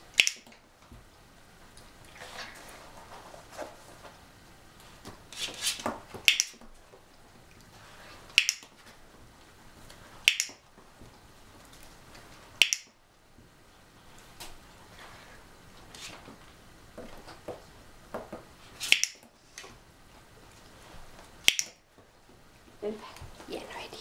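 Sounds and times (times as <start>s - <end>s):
clicker clicks: 21.4s - 21.8s.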